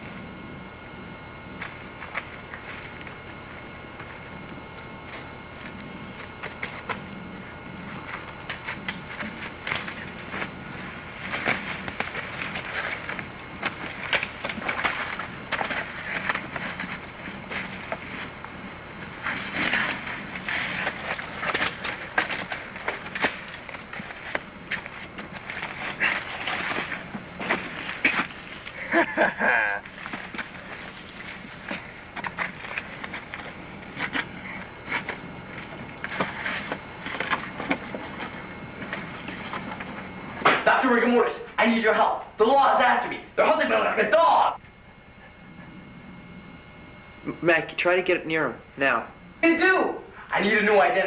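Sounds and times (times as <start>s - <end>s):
twigs snapping: 7.8s - 18.5s.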